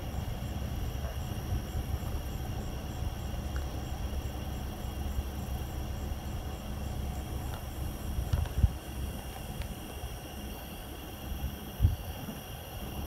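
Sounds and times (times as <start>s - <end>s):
wind buffeting microphone: 0.0s - 3.6s, 7.2s - 13.0s.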